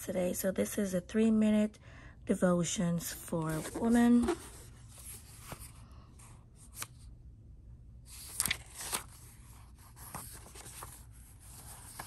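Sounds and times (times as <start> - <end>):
faint low room hum: 0.0 - 12.0
book pages rustling: 3.1 - 7.1, 8.1 - 12.0.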